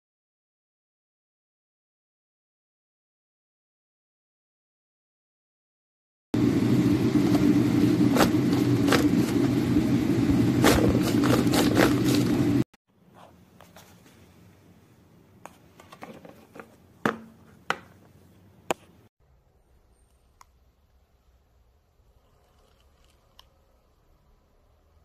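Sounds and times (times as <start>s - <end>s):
loud steady low noise: 6.4s - 12.6s.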